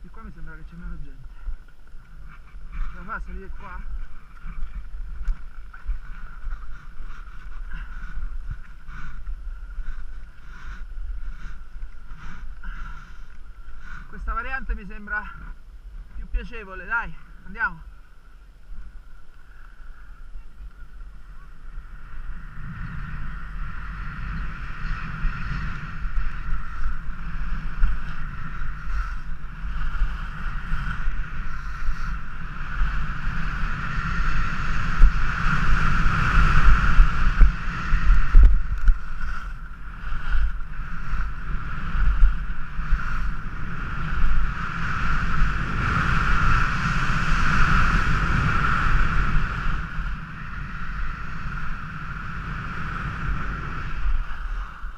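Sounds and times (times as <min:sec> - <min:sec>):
wind rushing over microphone: 0:00.0 - 0:54.9
skis scraping on packed snow: 0:23.2 - 0:54.9.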